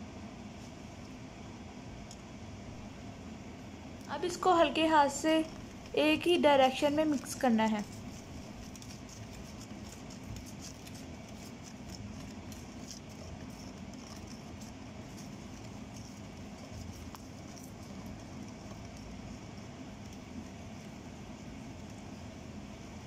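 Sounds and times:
steady low hum: 0.0s - 23.0s
whisk stirring batter in a bowl: 5.2s - 23.0s.

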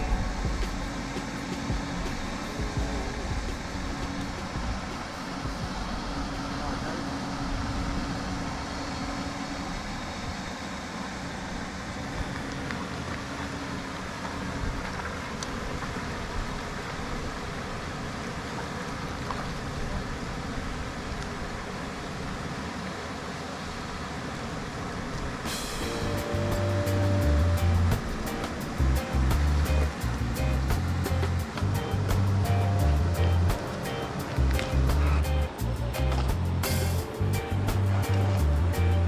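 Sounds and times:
low rumble: 0.0s - 10.4s, 25.5s - 39.0s
hiss: 3.4s - 12.3s, 25.2s - 37.3s.

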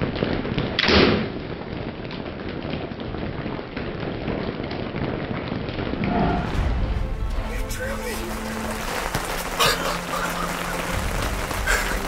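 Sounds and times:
sharp crack of bow shot: 0.8s - 1.3s
rain hissing: 3.0s - 12.0s.

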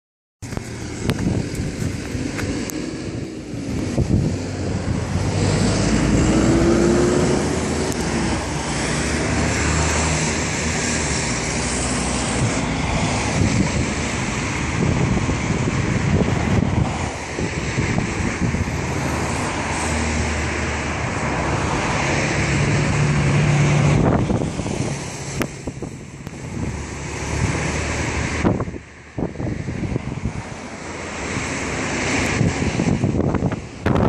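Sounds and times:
road traffic: 0.4s - 34.0s
vehicle passing: 0.4s - 34.0s
wind rumbling on microphone: 0.4s - 34.0s.

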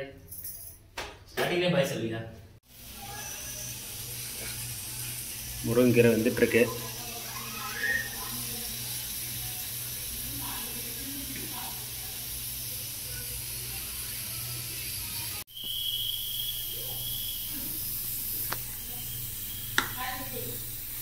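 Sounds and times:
cooking hiss from pot: 2.6s - 21.0s
high steady tone: 13.0s - 20.6s.

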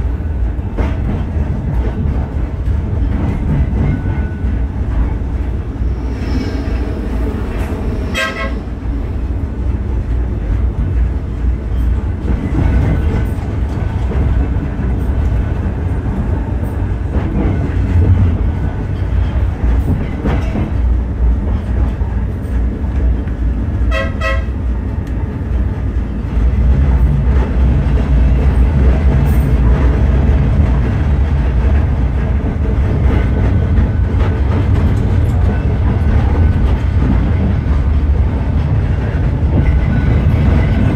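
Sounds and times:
tram rumbling along tracks: 0.0s - 40.9s
tram horn tooting: 8.1s - 8.8s, 23.9s - 24.6s.

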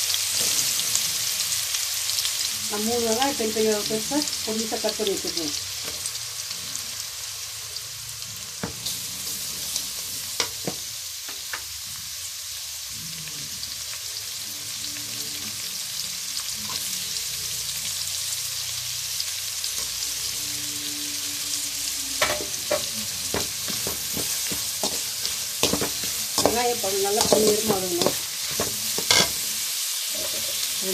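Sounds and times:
onions sizzling in hot oil: 0.0s - 30.9s
metal spoon scraping a pot: 22.0s - 30.8s.

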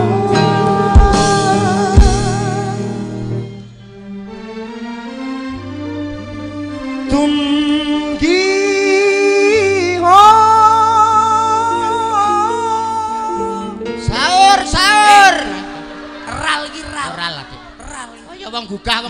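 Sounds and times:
person singing into a microphone: 0.0s - 3.2s, 7.0s - 15.5s
live band playing: 0.0s - 19.0s.

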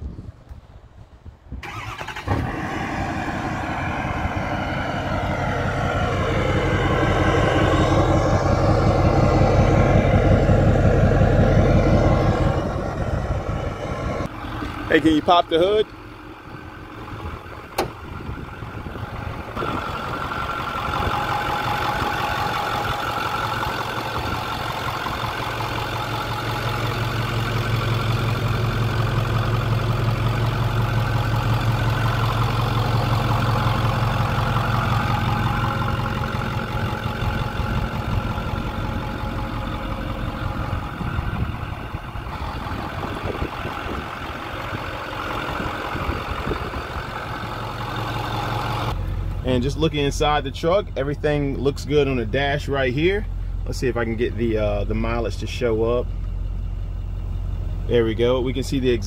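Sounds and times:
diesel engine idling: 1.6s - 59.0s.

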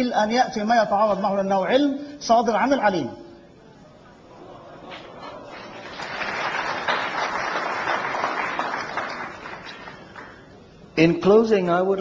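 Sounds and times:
audience applauding: 4.9s - 10.5s.

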